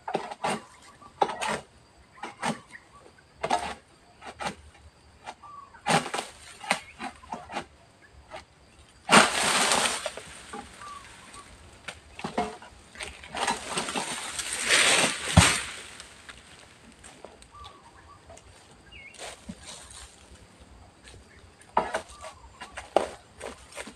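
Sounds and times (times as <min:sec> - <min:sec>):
palm fronds rustling and falling: 0:05.9 - 0:07.3, 0:09.0 - 0:17.7, 0:18.4 - 0:20.4
heavy thud on ground: 0:15.1 - 0:16.0.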